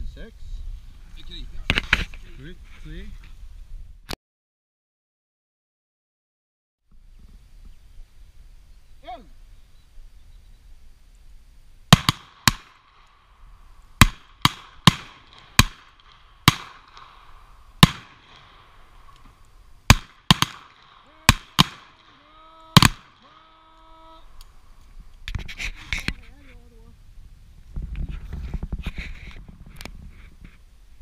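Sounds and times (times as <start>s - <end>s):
revolver shots: 14.0s - 19.3s.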